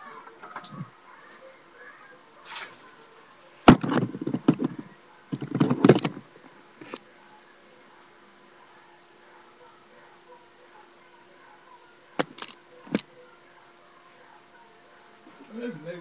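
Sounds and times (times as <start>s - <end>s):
rattling and clattering: 3.7s - 6.2s.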